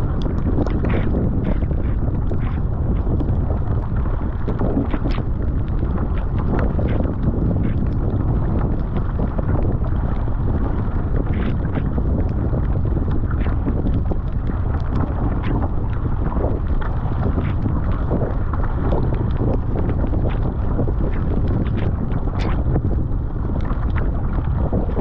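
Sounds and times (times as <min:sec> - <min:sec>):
paddle blades splashing: 0:00.0 - 0:25.0
water rushing along a hull: 0:00.0 - 0:25.0
wind buffeting microphone: 0:00.0 - 0:25.0.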